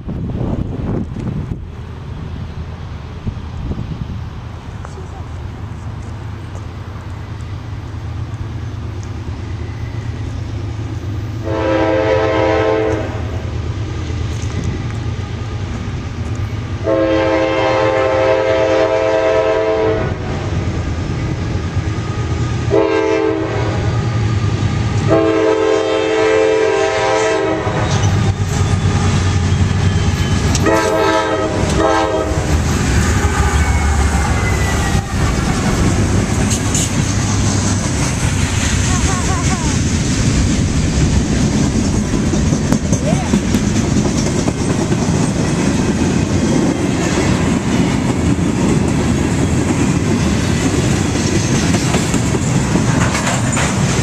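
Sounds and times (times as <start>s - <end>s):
locomotive air horn blasts: 11.4s - 13.3s, 16.8s - 20.3s, 22.7s - 23.9s, 25.0s - 27.8s, 30.6s - 35.0s.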